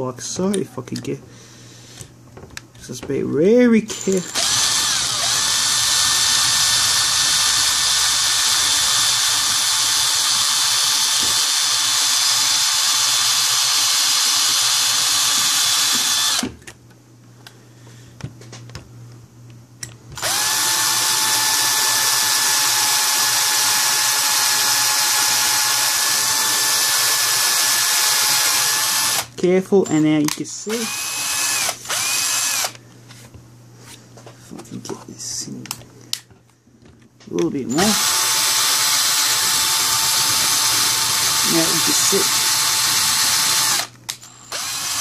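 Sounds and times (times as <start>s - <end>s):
cordless drill boring into screw: 3.9s - 16.5s, 20.2s - 29.3s, 30.7s - 32.8s, 37.7s - 45.0s.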